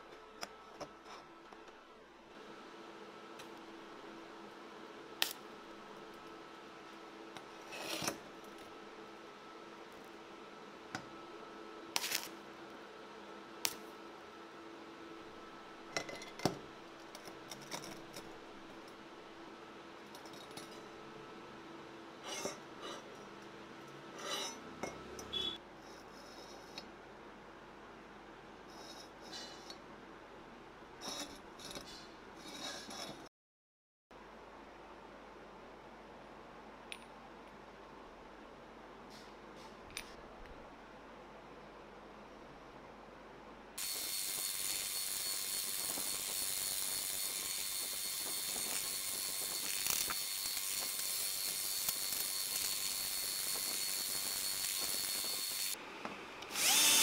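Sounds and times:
metal scrape: 0:07.6 - 0:08.2, 0:22.2 - 0:23.2, 0:24.1 - 0:24.7, 0:31.0 - 0:33.3.

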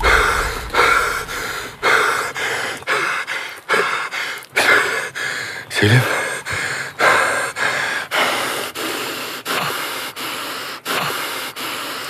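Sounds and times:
man panting hard: 0:03.3 - 0:12.0.

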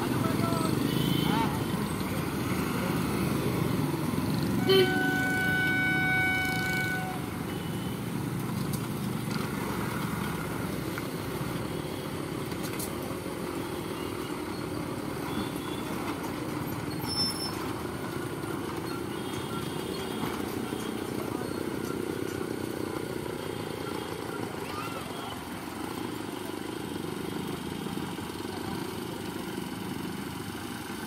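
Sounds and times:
motorcycle and truck engines: 0:00.0 - 0:31.0
vehicle horn: 0:00.8 - 0:01.6, 0:04.6 - 0:08.0.

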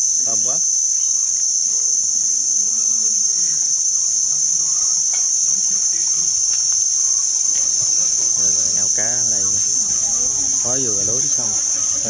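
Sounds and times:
cicadas singing: 0:00.0 - 0:12.0
faint voices: 0:00.0 - 0:12.0.

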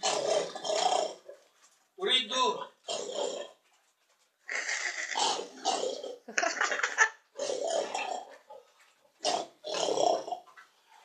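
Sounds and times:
pig grunting: 0:00.0 - 0:01.5, 0:02.8 - 0:03.6, 0:04.5 - 0:06.3, 0:07.3 - 0:10.6.

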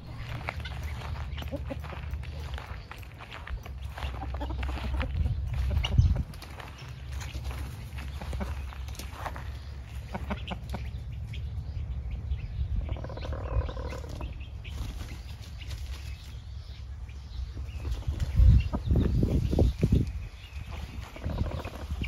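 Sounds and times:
chicken calling: 0:00.0 - 0:11.5, 0:12.7 - 0:14.9, 0:20.8 - 0:22.0
steady low rumble: 0:00.0 - 0:22.0.

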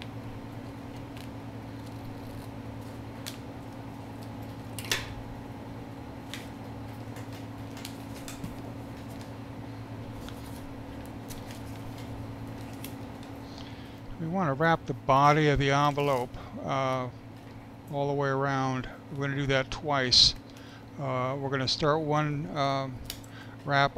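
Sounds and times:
steady low hum: 0:00.0 - 0:23.9
scissors cutting tape: 0:00.9 - 0:02.6
tape and paper rustling: 0:06.3 - 0:09.4, 0:10.0 - 0:13.7.

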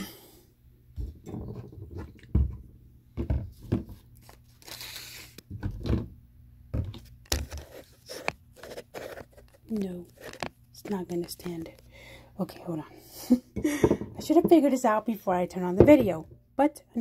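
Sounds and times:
rustling scrape: 0:07.4 - 0:10.5
phone handling knocks and bumps: 0:15.8 - 0:16.4.

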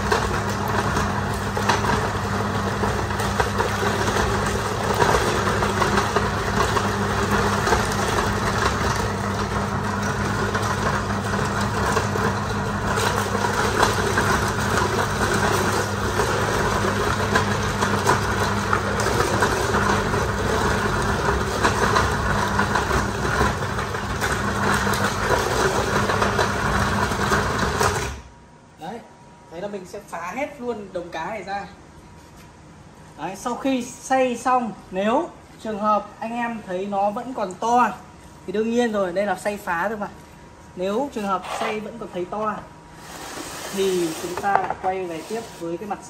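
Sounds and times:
meat grinder motor hum: 0:00.0 - 0:28.3, 0:40.8 - 0:46.0.

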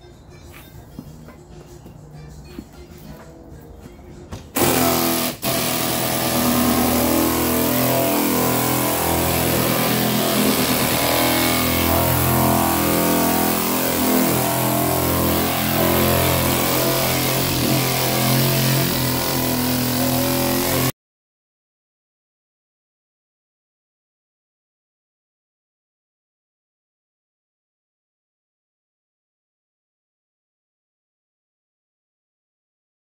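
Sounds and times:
pneumatic sander running: 0:04.5 - 0:20.9.

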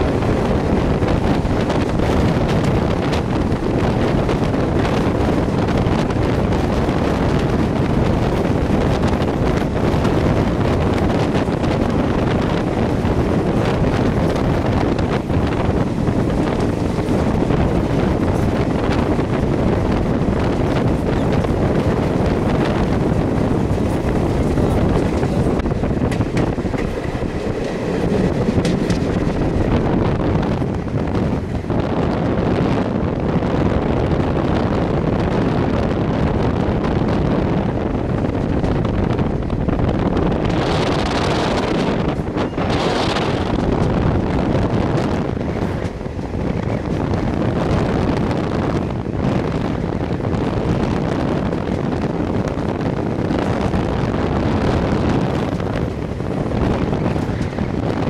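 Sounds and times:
train rumbling on track: 0:00.0 - 0:58.0
wind buffeting microphone: 0:00.0 - 0:58.0.

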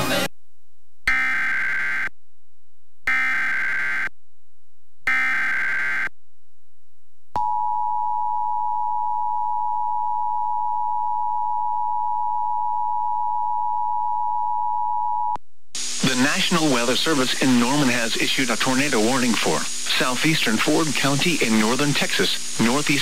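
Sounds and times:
digital data burst screech: 0:15.8 - 0:23.0.

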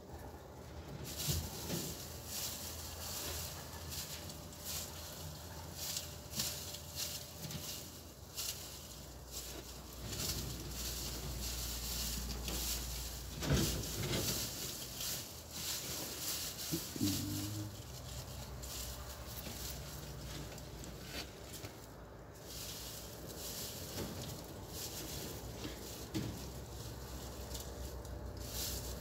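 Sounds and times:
scratchy fur rustles: 0:01.0 - 0:29.0.

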